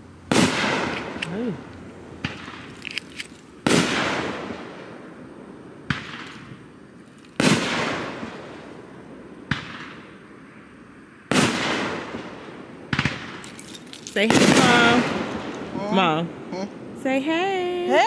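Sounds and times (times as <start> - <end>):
firework shells booming: 0.3 - 2.9, 3.6 - 10.4, 11.3 - 13.6, 14.2 - 15.8
rolling echo: 0.3 - 3.0, 3.6 - 16.5
faint firework crackles: 0.3 - 15.8.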